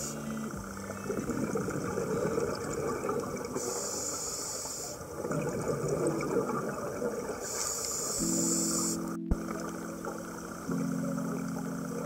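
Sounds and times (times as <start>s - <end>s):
thin high hiss: 0.0s - 0.5s, 3.6s - 5.1s, 7.4s - 9.2s
exhaled bubbles underwater: 0.0s - 4.1s, 5.0s - 12.0s.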